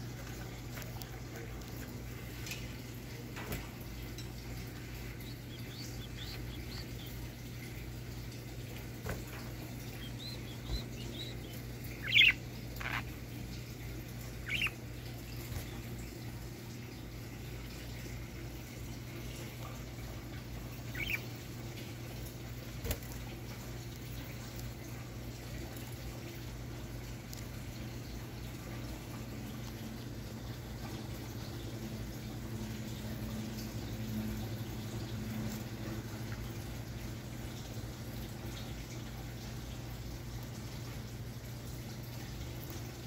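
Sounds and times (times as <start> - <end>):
steady low hum: 0.0 - 43.0
budgerigars chirping: 5.2 - 7.2, 9.9 - 13.1, 14.4 - 14.8, 20.9 - 21.2.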